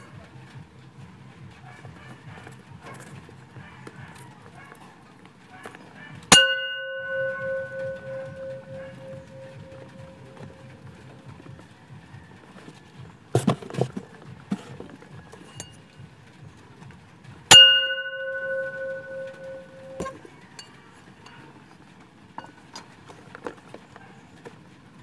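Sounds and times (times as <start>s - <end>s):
small bell ringing: 6.3s - 11.3s, 17.5s - 21.4s.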